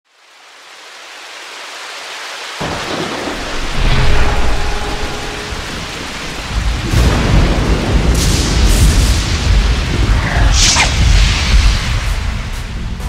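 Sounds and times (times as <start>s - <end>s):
rain hiss: 0.1s - 13.0s
deep thunder rumble: 2.6s - 12.5s.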